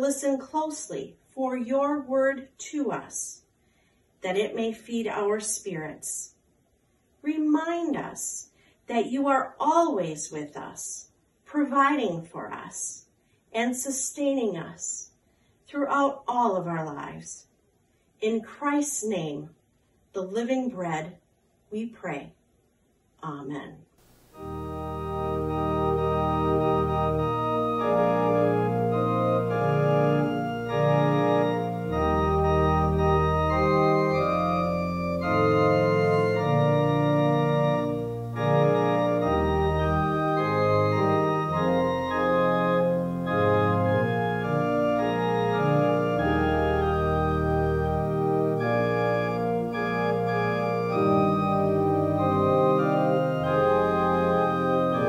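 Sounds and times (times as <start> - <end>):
organ playing a hymn: 24.1 - 55.0.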